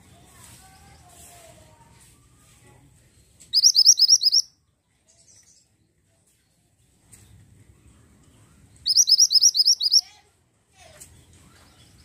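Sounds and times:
bird chirping: 3.3s - 6.0s, 8.8s - 10.1s.

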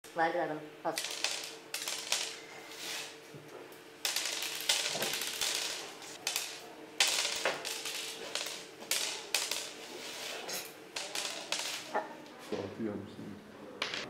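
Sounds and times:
dice clattering on hard surface: 0.9s - 3.2s, 4.0s - 12.0s, 13.8s - 14.0s.

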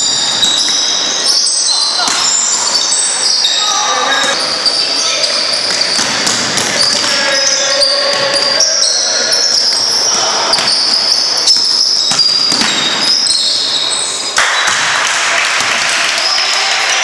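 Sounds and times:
sneakers squeaking: 0.0s - 15.0s
crowd cheering: 0.0s - 17.0s
voices echoing: 0.0s - 17.0s
ball bouncing on wooden floor: 2.0s - 2.4s, 5.7s - 8.5s, 9.6s - 13.4s, 14.4s - 15.0s.

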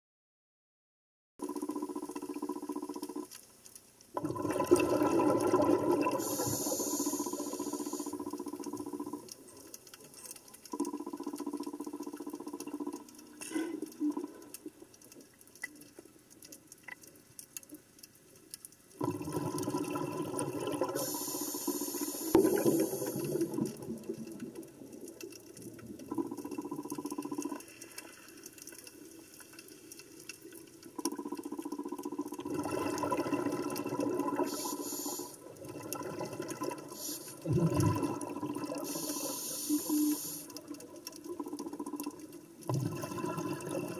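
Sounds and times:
muffled underwater bubbling: 4.2s - 9.8s, 10.6s - 15.0s, 19.0s - 28.0s, 30.4s - 43.9s.

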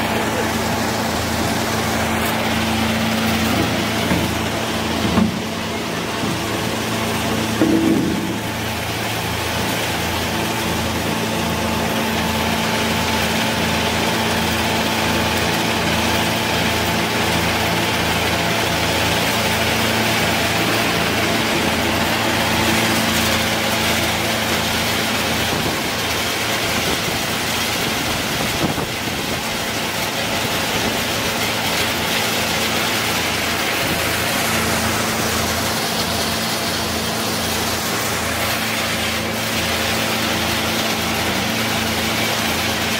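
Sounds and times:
shelling machine motor hum: 0.0s - 42.9s
dense rattling: 0.1s - 9.7s.

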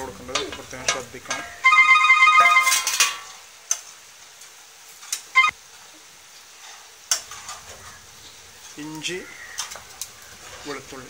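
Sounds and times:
sauce sizzling in a pot: 2.9s - 11.0s.

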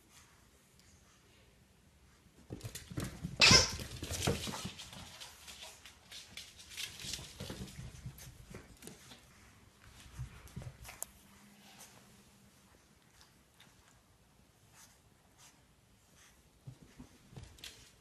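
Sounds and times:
puppy claws pattering on floor: 2.4s - 12.0s, 16.6s - 18.0s.

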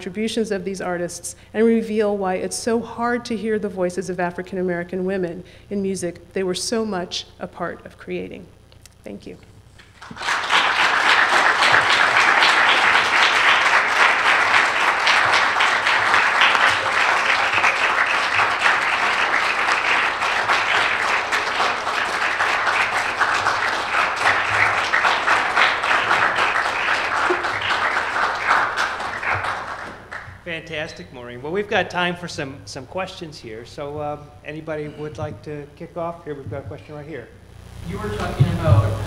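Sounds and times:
audience applauding: 9.8s - 30.5s.

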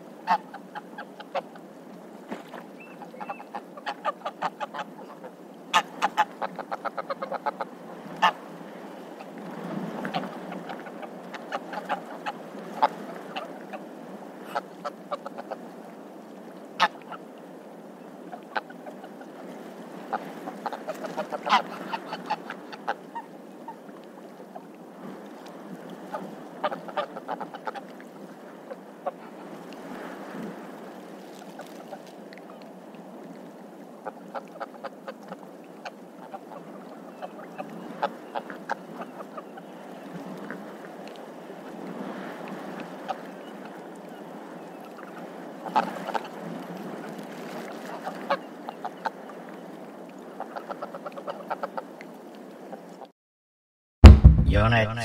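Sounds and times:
geese calling: 2.8s - 7.6s, 21.4s - 22.8s.

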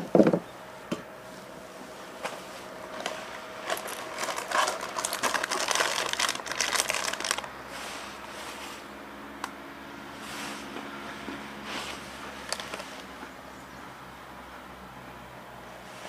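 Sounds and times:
snack wrapper crinkling: 3.6s - 7.6s, 12.4s - 13.1s.

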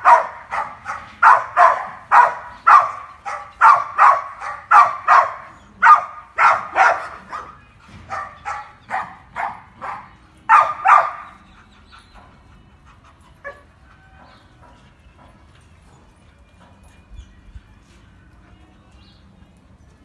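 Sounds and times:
dog barking: 0.0s - 11.3s.

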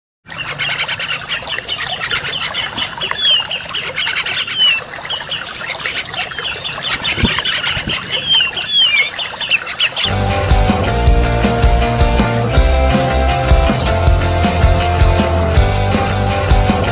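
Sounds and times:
loud rock music: 10.1s - 16.9s.

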